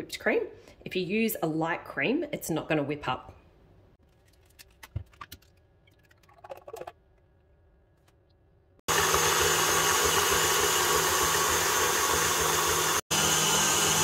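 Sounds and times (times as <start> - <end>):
electric mixer whirring: 8.9 - 14.0.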